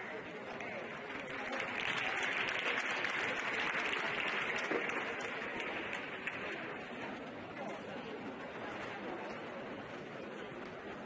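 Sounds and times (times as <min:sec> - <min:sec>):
audience clapping: 0:00.0 - 0:07.1.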